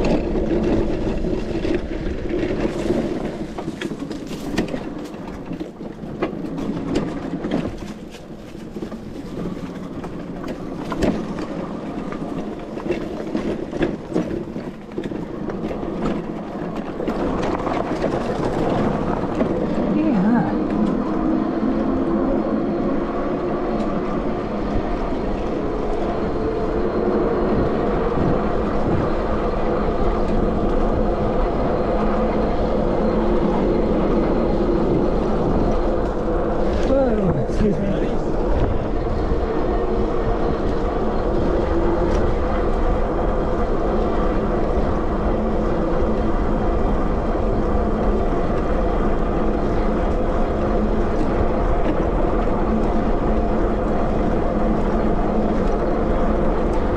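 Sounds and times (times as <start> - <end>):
electric bike running hum: 0.0 - 56.9.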